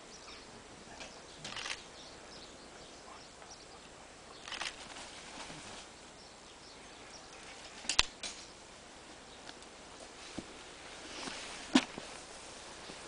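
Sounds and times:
wire cage scraping rustle: 0:04.4 - 0:06.0, 0:07.3 - 0:08.5.

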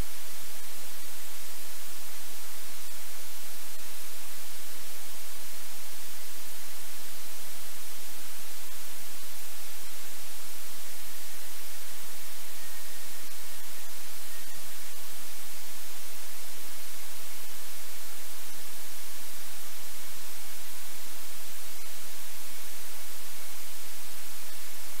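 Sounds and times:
static hiss: 0:00.0 - 0:25.0.

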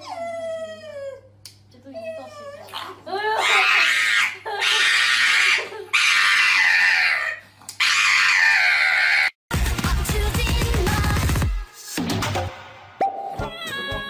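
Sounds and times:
loud wailing cries: 0:03.4 - 0:09.4.

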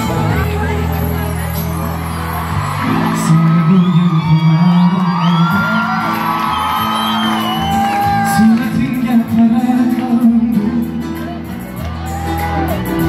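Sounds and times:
live band over loudspeakers: 0:00.0 - 0:13.0
crowd shouting and whooping: 0:01.4 - 0:09.1, 0:11.2 - 0:13.0.

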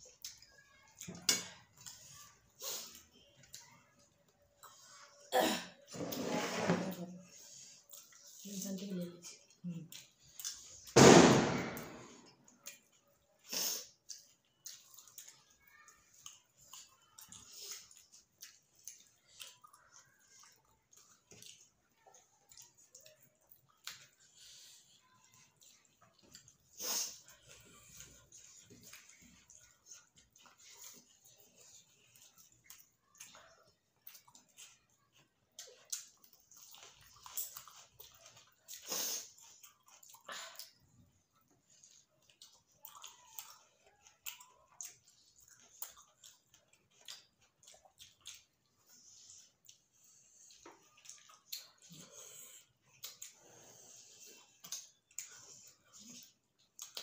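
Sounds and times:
chewing and lip smacks: 0:00.0 - 0:05.3, 0:07.2 - 0:11.0, 0:11.8 - 0:57.0.

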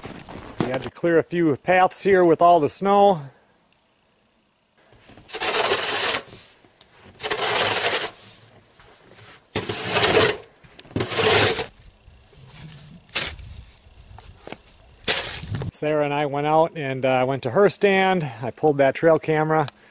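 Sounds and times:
snow shovel scraping snow: 0:05.0 - 0:11.8, 0:12.4 - 0:15.7.

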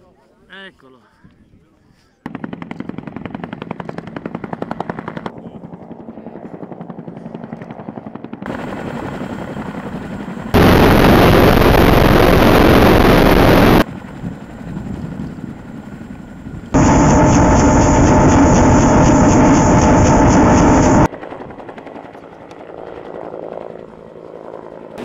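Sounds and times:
helicopter engines hovering: 0:02.3 - 0:25.0
helicopter rotors thudding: 0:06.9 - 0:21.9
loud rushing noise: 0:10.6 - 0:13.8, 0:16.8 - 0:21.1.

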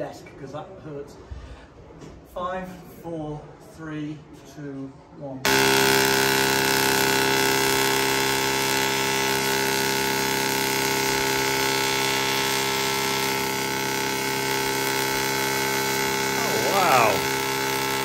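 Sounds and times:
tesla coil buzzing: 0:05.5 - 0:18.0.

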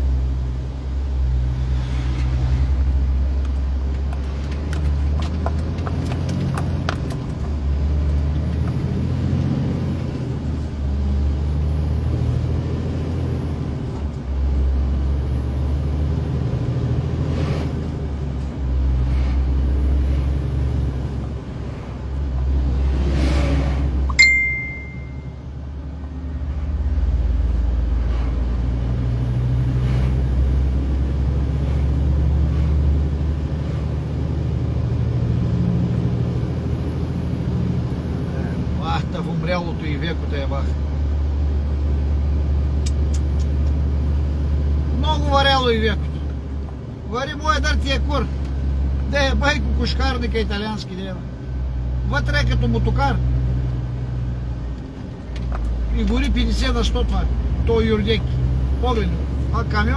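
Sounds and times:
road noise: 0:00.0 - 0:59.9
lorry engine drone: 0:07.5 - 0:45.0
short high beep: 0:24.1 - 0:25.4
sharp click: 0:42.8 - 0:43.8.

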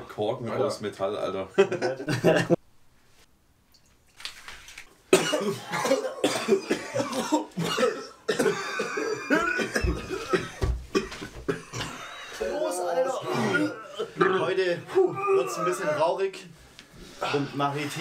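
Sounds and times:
person coughing: 0:05.1 - 0:12.1, 0:13.3 - 0:14.5.

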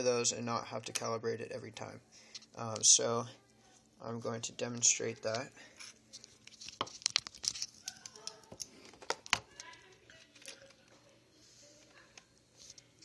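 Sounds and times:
usb cable clicks and rustles: 0:06.2 - 0:11.0.

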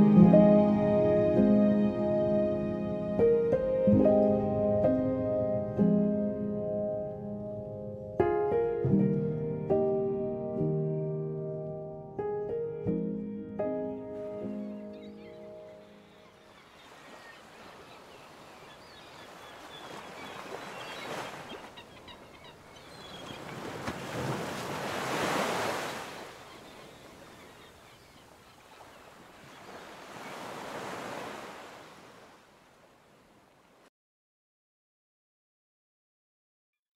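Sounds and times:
surf breaking on beach: 0:23.1 - 0:27.3, 0:29.0 - 0:32.9.

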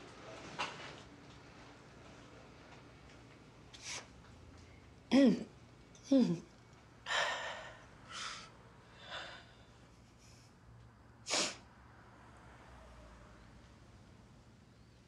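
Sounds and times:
woman inhaling sharply and sniffing: 0:11.3 - 0:11.6.

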